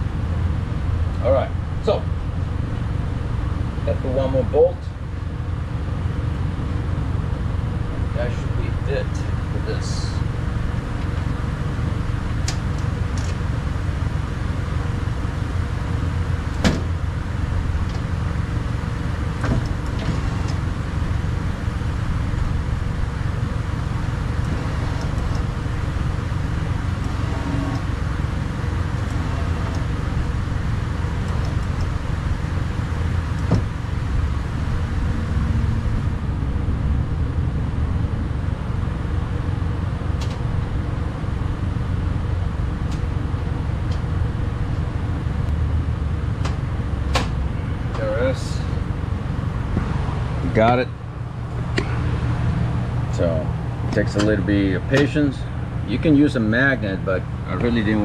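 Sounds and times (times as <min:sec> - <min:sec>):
steady low hum: 0:00.0 - 0:58.0.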